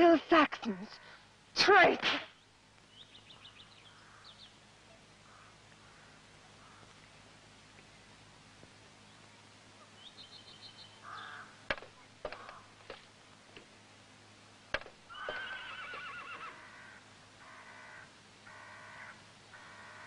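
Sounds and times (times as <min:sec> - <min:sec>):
sharp knocks: 0:11.7 - 0:13.0, 0:14.7 - 0:15.4
horse whinnying: 0:15.1 - 0:16.6.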